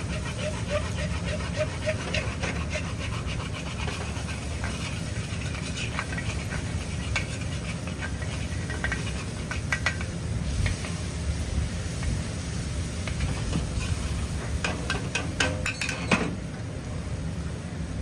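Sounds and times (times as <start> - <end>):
metal ladle scraping a wok: 0.0 - 10.1, 13.1 - 16.1.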